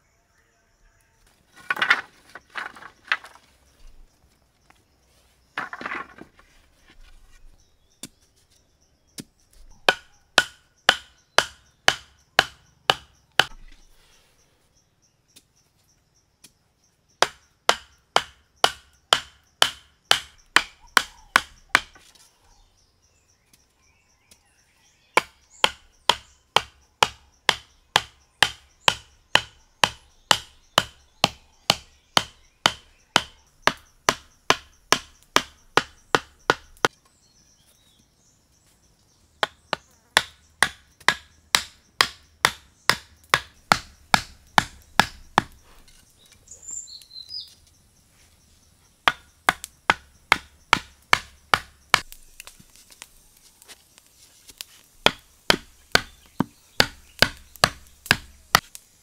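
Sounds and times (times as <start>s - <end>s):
blade chopping wooden stick: 39.4s - 45.6s, 49.1s - 52.6s, 55.0s - 58.8s.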